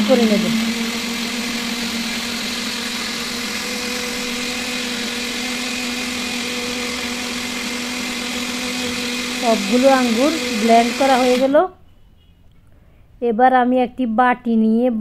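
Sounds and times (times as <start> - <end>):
blender running: 0.0 - 11.6.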